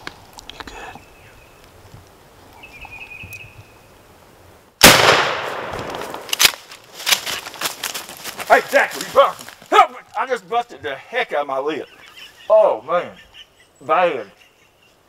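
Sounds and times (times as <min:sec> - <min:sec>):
shotgun shot: 0:04.8 - 0:06.6
light rustling: 0:05.8 - 0:10.2.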